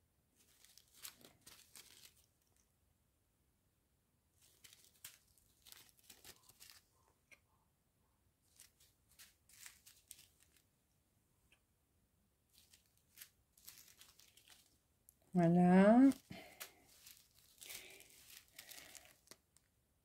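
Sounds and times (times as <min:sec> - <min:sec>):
plastic bags crinkling: 0:00.4 - 0:02.6, 0:04.4 - 0:07.1, 0:08.5 - 0:10.6, 0:12.5 - 0:19.7.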